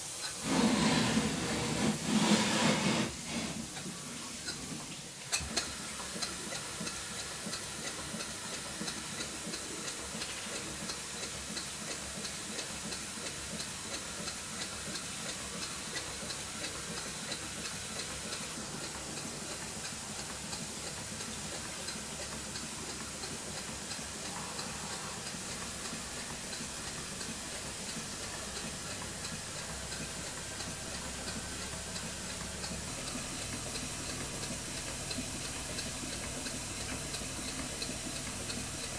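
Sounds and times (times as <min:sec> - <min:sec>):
steam engine running on air: 0:00.0 - 0:04.6, 0:05.5 - 0:38.9
valve gear ticking: 0:05.3 - 0:38.9.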